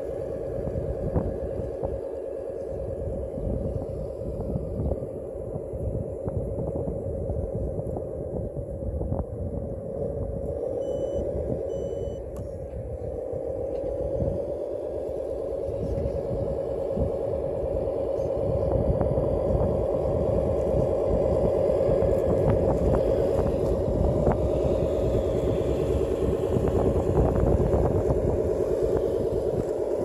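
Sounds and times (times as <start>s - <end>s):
toy truck motor drone: 10.8s - 12.2s.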